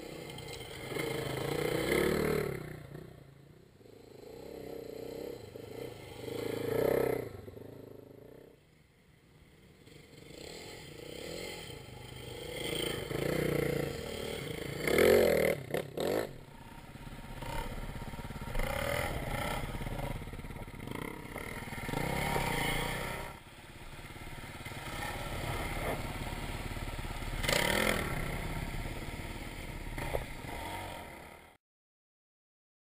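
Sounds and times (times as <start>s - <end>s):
dirt bike engines revving: 0.0s - 3.2s, 3.8s - 8.4s, 9.1s - 31.6s
low engine rumble: 16.3s - 31.1s.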